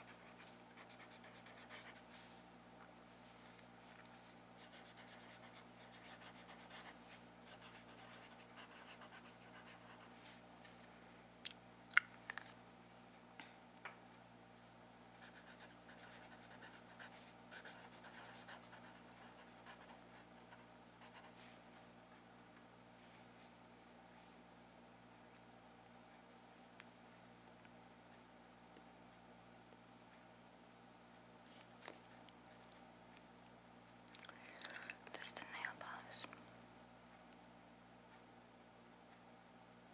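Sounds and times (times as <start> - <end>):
pencil scratching on paper: 0.0 - 2.3, 4.6 - 10.3, 15.2 - 21.5.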